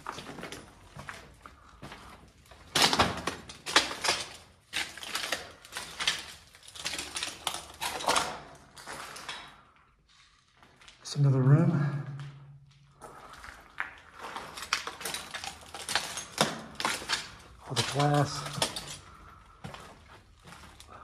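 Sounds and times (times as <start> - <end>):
footsteps crunching on gritty floor: 0.0 - 7.8, 12.9 - 21.0.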